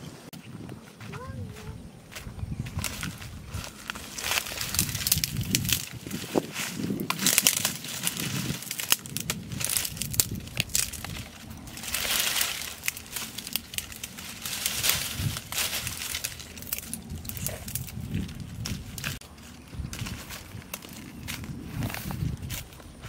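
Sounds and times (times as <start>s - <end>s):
crinkling and rustling: 2.7s - 23.0s.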